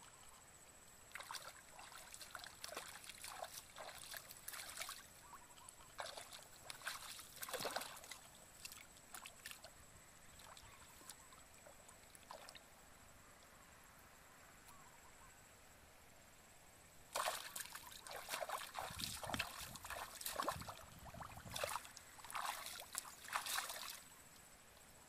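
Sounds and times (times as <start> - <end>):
hands splashing in muddy water: 1.1 - 5.1, 6.0 - 9.7, 17.1 - 24.1.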